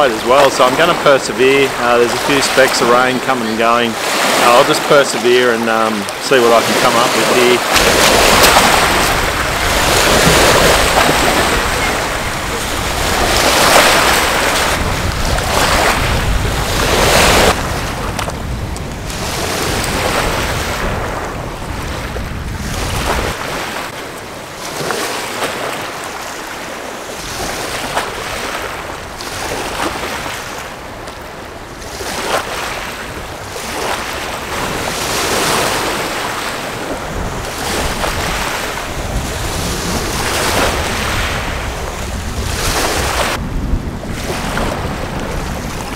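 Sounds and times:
lake waves washing on shore: 0:00.0 - 0:45.9
wind on microphone: 0:06.7 - 0:23.8, 0:27.2 - 0:45.9.

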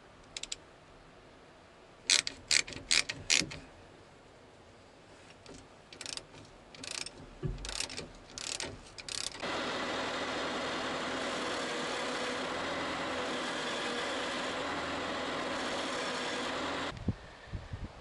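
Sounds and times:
ratchet wrench clicking: 0:00.4 - 0:00.6, 0:02.1 - 0:03.6, 0:05.9 - 0:09.5
diesel engine running: 0:09.4 - 0:16.9.

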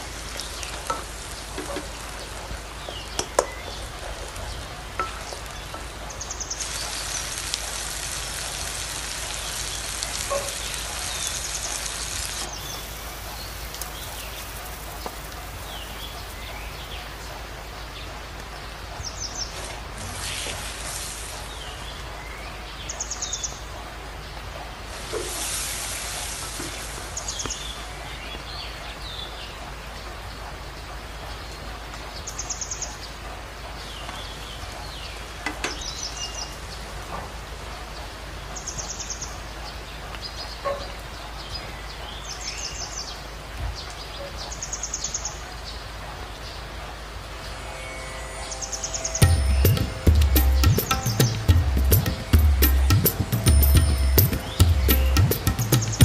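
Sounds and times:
birds chirping: 0:00.0 - 0:07.5, 0:09.5 - 0:25.4, 0:26.7 - 0:56.0
food sizzling in oil: 0:24.9 - 0:27.0.

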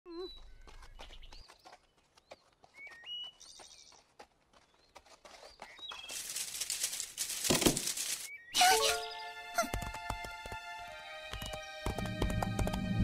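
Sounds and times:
bird chirps: 0:00.1 - 0:04.1
tapping hoofsteps: 0:00.2 - 0:08.3, 0:09.5 - 0:13.0
rustle of leaves: 0:05.9 - 0:08.4.

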